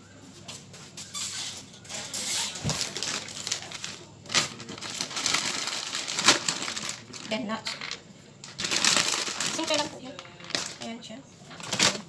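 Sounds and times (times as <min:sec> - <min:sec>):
packaging crinkling and rustling: 0:01.9 - 0:10.9, 0:11.5 - 0:12.0.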